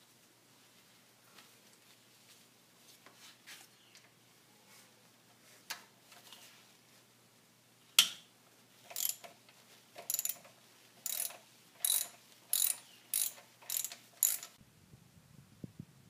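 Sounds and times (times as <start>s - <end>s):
ratchet wrench clicking: 8.9s - 9.4s, 10.0s - 14.6s.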